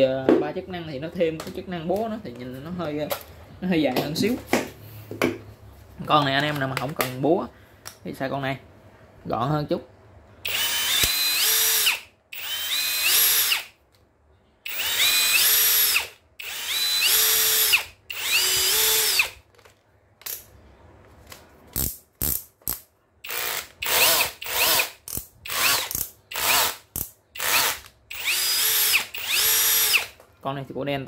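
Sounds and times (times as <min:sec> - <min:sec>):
cordless drill motor whine: 0:10.4 - 0:13.7, 0:14.7 - 0:19.4, 0:27.4 - 0:30.1.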